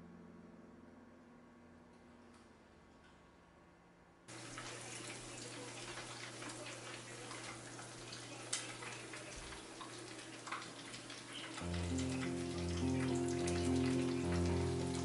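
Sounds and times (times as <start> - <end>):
food sizzling in frying oil: 4.3 - 15.0.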